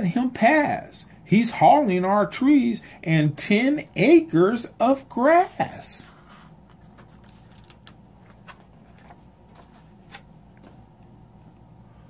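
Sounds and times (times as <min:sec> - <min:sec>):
low room hum: 0:00.0 - 0:12.0
book page turning: 0:06.2 - 0:10.8.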